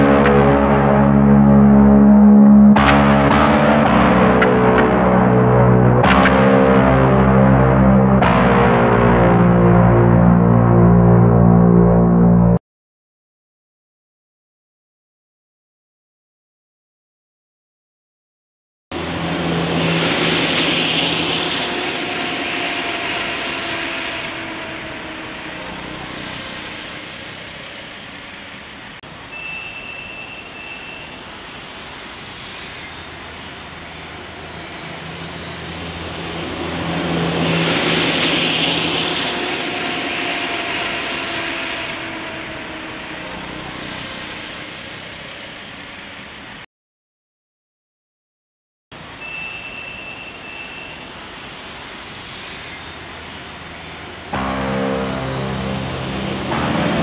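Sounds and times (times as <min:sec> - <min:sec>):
road traffic rushing: 0:00.0 - 0:11.5, 0:18.9 - 0:46.6, 0:49.0 - 0:57.0
music with held low chords: 0:00.0 - 0:12.6, 0:54.4 - 0:57.0
thin high whine: 0:00.0 - 0:12.6, 0:19.0 - 0:46.3, 0:49.2 - 0:57.0.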